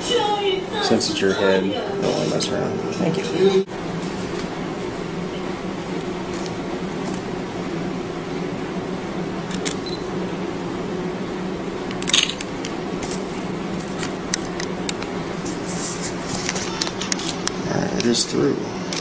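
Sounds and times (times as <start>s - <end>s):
room noise hum: 0.0s - 19.0s.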